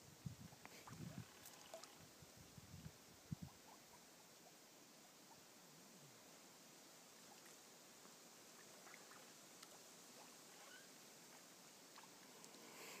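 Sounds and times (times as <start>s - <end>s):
faint steady hiss: 0.0s - 13.0s
faint ticks: 0.6s - 2.0s, 7.2s - 13.0s
ducks dabbling in water: 0.8s - 2.0s.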